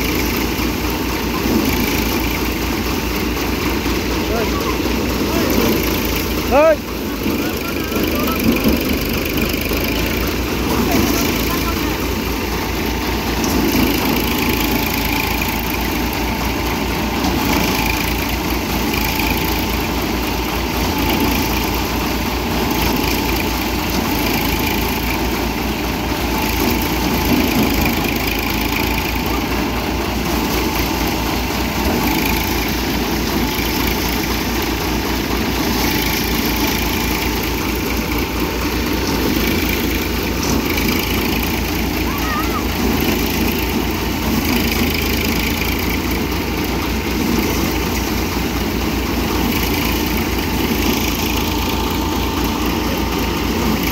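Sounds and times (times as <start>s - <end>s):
tractor engine running: 0.0s - 53.9s.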